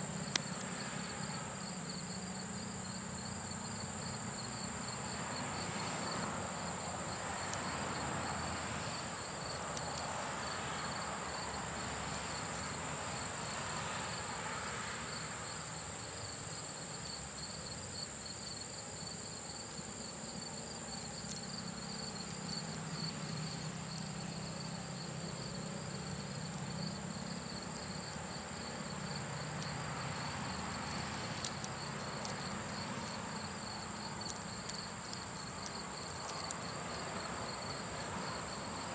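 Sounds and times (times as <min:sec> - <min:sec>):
insects trilling: 0:00.0 - 0:38.9
rapid pulsing insect chirp: 0:00.0 - 0:38.9.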